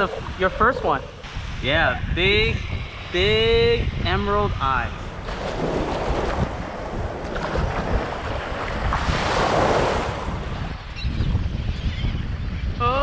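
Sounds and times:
wind buffeting microphone: 0.0s - 13.0s
small waves washing ashore: 5.0s - 10.8s.

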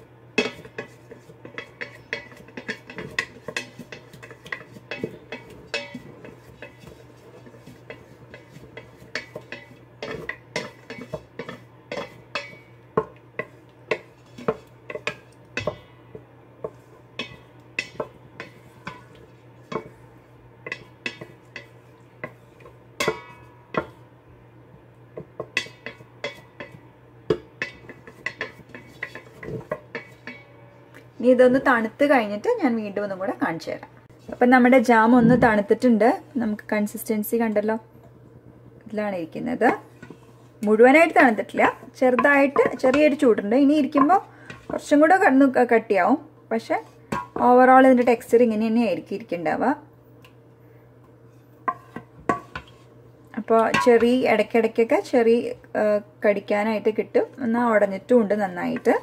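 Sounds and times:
spatula scraping a metal pot: 0.4s - 12.8s, 13.4s - 15.8s, 16.6s - 20.0s, 20.6s - 23.9s, 27.6s - 30.6s, 39.8s - 44.8s.

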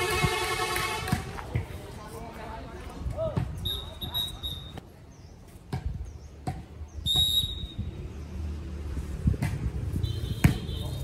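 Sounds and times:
volleyball slaps: 0.8s - 1.7s, 10.4s - 10.7s.

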